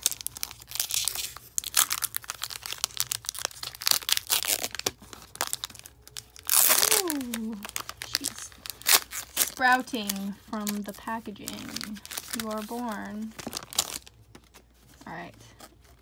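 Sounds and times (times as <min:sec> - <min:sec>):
foil pack ripping open: 0:00.0 - 0:14.6
foil wrapper crinkling: 0:00.0 - 0:16.0
person exclaiming: 0:06.6 - 0:08.4.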